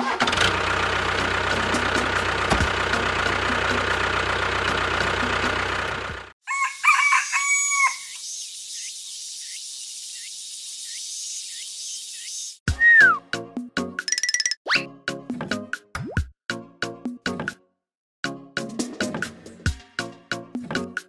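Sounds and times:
rooster crowing: 6.4s - 8.1s.

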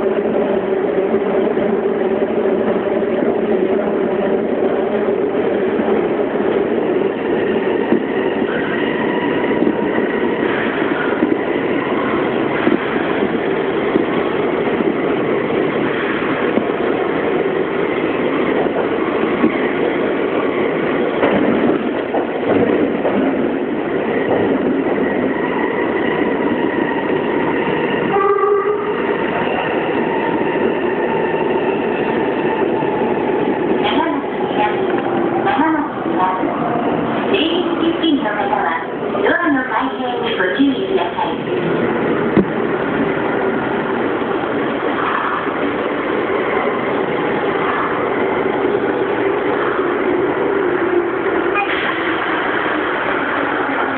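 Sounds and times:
train running in tunnel: 0.0s - 53.9s
train horn blast: 28.1s - 28.9s.

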